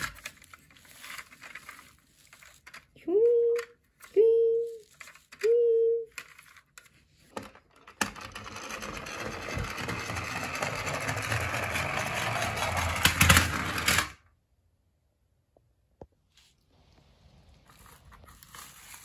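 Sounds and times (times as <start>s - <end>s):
toy truck rattling down wooden ramp: 0.0s - 2.9s, 7.4s - 14.2s.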